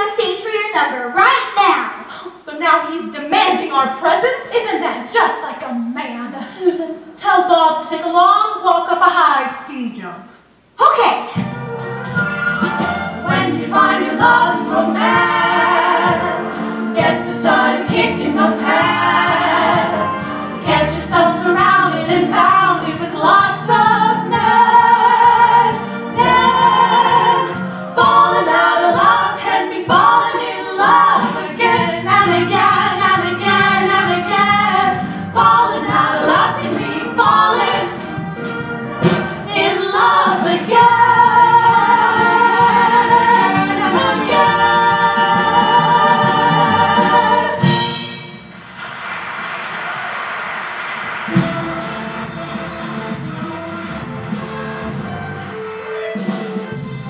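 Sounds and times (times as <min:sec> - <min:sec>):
backing music: 0:11.3 - 0:57.0
women singing in harmony: 0:13.2 - 0:38.1, 0:39.4 - 0:47.7.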